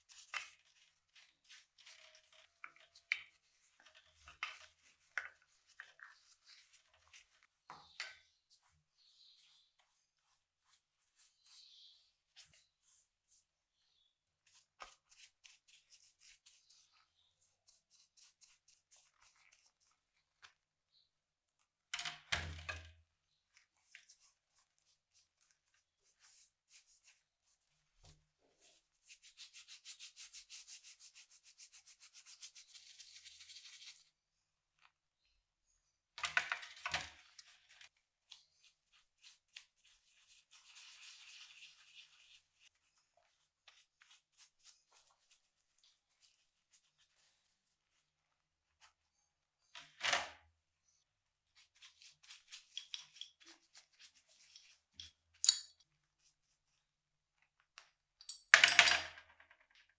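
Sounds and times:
brush scrubbing metal: 14.4 - 20.0, 38.3 - 47.6, 51.6 - 55.4.

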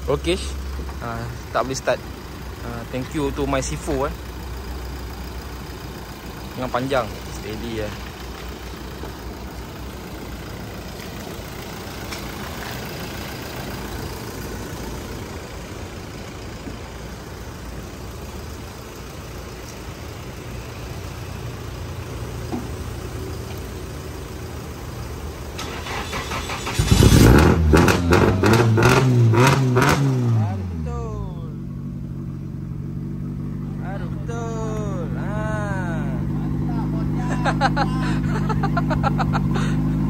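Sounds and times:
car engine revving: 25.6 - 40.0.

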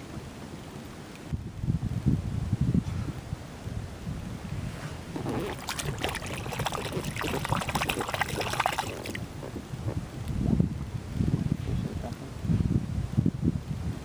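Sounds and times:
wind rumble on microphone: 0.0 - 14.0
water splashing and dripping: 5.2 - 9.3.

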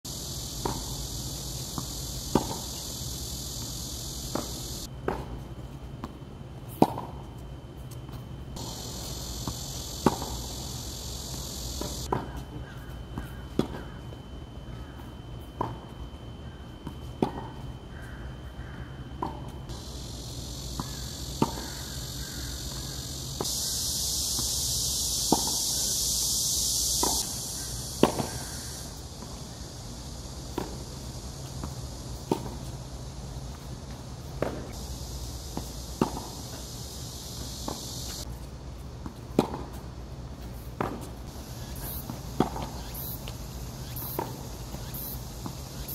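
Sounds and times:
high insect drone: 0.1 - 5.5, 6.6 - 45.9
tennis ball struck by racket: 9.4 - 10.5, 20.8 - 21.8, 25.2 - 25.7, 28.0 - 28.4, 35.5 - 36.4, 39.4 - 39.7, 40.8 - 41.1, 42.4 - 43.3.

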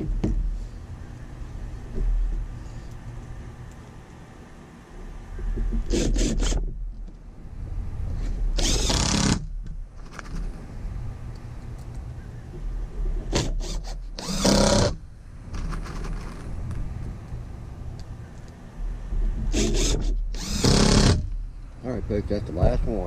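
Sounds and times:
cordless drill driving screws: 5.9 - 6.6, 8.6 - 9.5, 13.3 - 15.0, 19.5 - 21.3.

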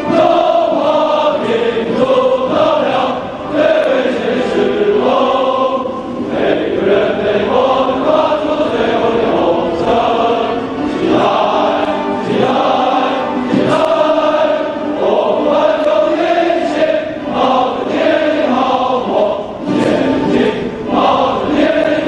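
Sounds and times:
choir singing: 0.0 - 22.0
music: 0.0 - 22.0.

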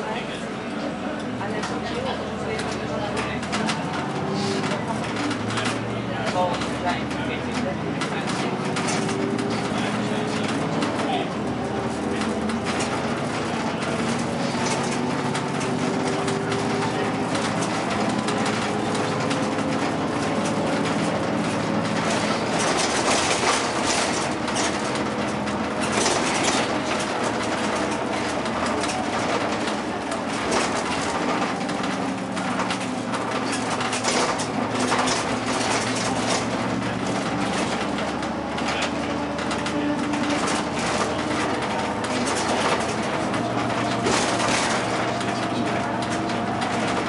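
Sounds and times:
bus engine hum: 0.0 - 47.0
road noise: 0.0 - 47.0
rattles: 2.5 - 47.0.

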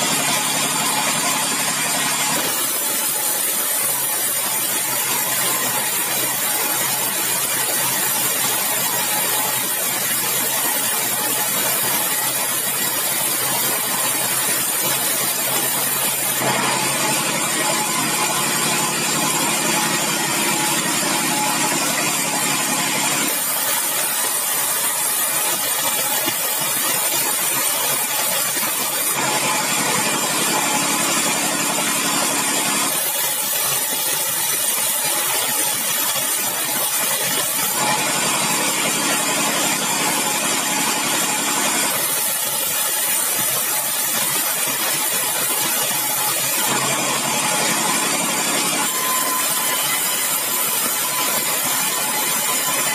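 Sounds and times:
band saw cutting wood planks: 0.0 - 52.9.

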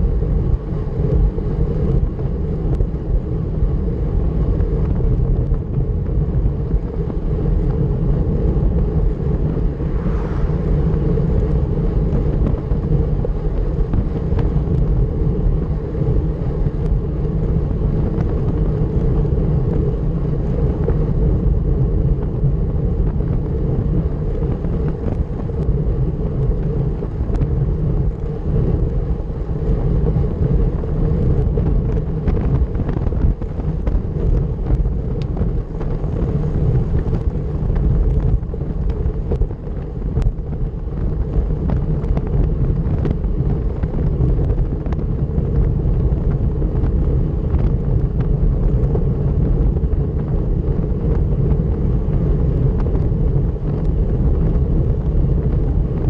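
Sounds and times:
bicycle road rumble: 0.0 - 56.0
wind rush on microphone: 0.0 - 56.0.

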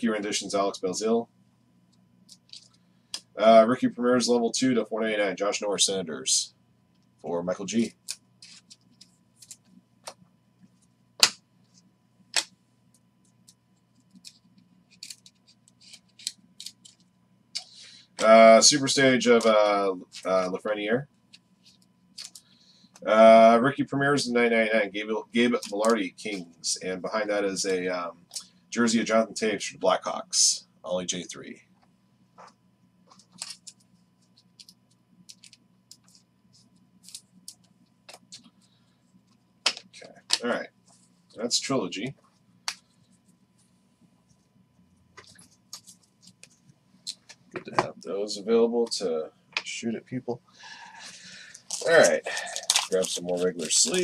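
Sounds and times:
low steady hum: 0.0 - 54.0
trading cards flicking and sliding: 7.8 - 18.3, 21.3 - 22.5, 32.4 - 38.6, 45.1 - 47.9, 51.6 - 54.0
cards clicking and snapping: 11.2 - 11.4, 13.4 - 18.3, 22.2 - 22.4, 33.1 - 33.8, 34.5 - 36.2, 39.6 - 40.5, 51.6 - 54.0.

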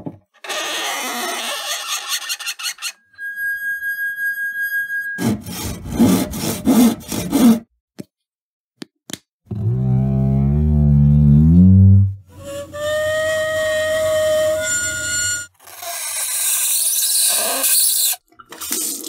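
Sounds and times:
rasping strokes: 0.4 - 7.6, 12.3 - 18.1
glass rim ringing: 3.1 - 5.3.

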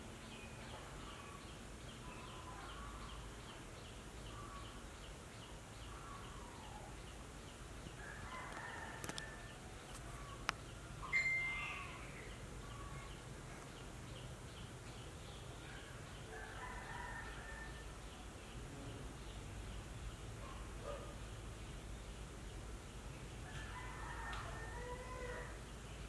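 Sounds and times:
bird calls: 4.3 - 5.1, 9.9 - 13.8
faint high repeating chirp: 11.0 - 12.3
short louder bird call: 11.0 - 12.3.

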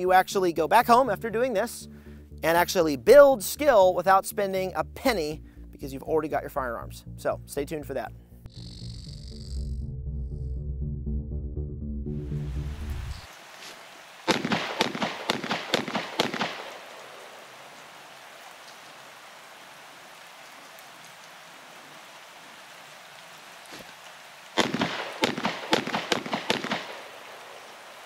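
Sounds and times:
steady hiss: 12.7 - 28.0
rapid gunshots: 14.3 - 16.9, 24.6 - 27.2.

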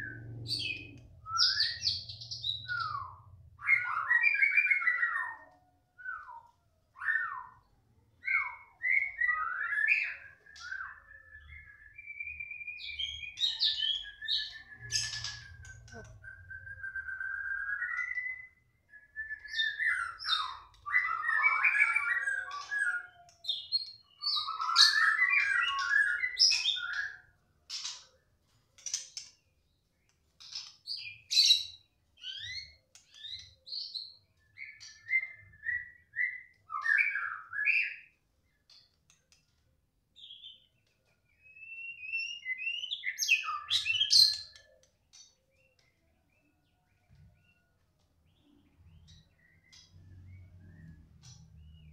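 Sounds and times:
bird singing whistled phrases: 0.0 - 27.3, 31.0 - 38.1, 41.3 - 44.9.

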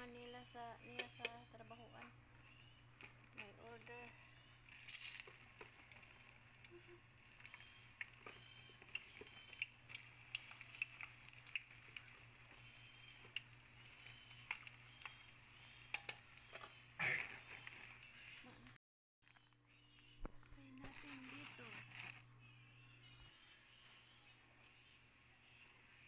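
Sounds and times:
food sizzling in hot oil: 4.6 - 18.2
oil popping and crackling: 4.6 - 18.8.

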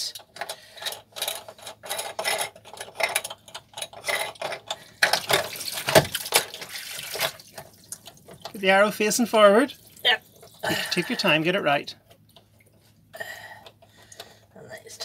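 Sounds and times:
water splashing and sloshing: 4.9 - 8.6, 9.4 - 10.9.

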